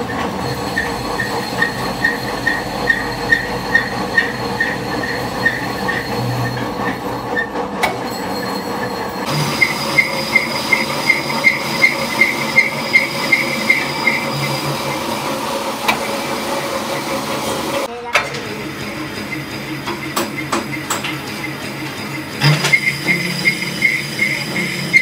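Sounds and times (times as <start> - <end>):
squeaks from metal cutting: 0.0 - 15.1, 20.3 - 25.0
lathe machine hum: 0.0 - 17.9, 18.5 - 25.0.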